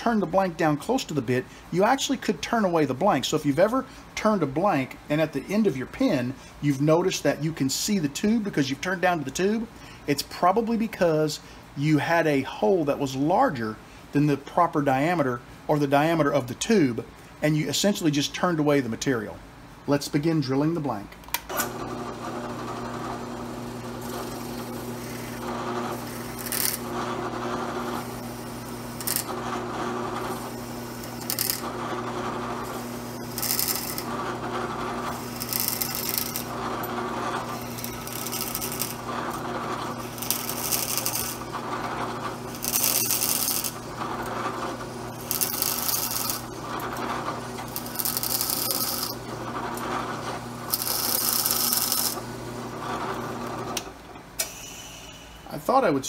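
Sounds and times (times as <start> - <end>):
drill press motor humming: 21.5 - 55.2
drill bit cutting resin: 24.1 - 49.8, 50.6 - 52.2.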